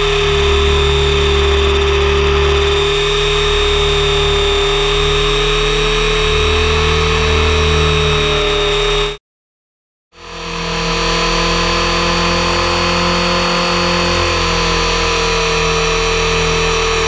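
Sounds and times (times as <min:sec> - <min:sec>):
low pulse: 0:00.0 - 0:09.2, 0:10.2 - 0:17.0
rc helicopter whine: 0:00.0 - 0:09.2, 0:10.2 - 0:17.0
rotor rushing: 0:00.0 - 0:09.2.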